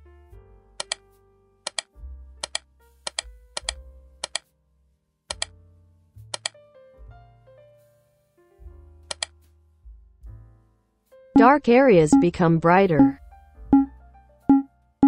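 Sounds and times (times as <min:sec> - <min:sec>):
background music with slow bass: 0:00.0 - 0:11.3.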